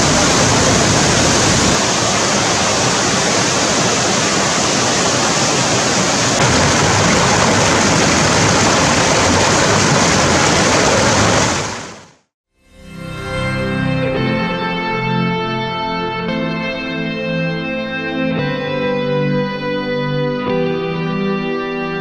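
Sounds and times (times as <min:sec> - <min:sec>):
fast rocky stream: 0:00.0 - 0:12.2
small waterfall rushing: 0:00.0 - 0:12.2.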